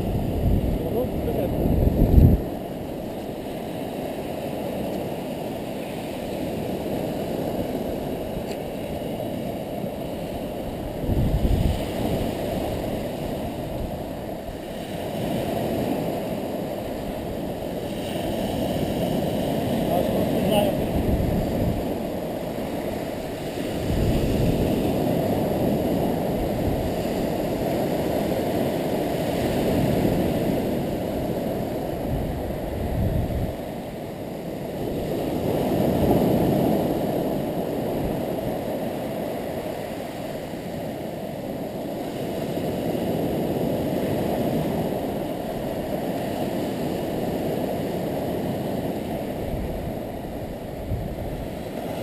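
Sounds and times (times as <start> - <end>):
waves washing on beach: 0.0 - 52.0.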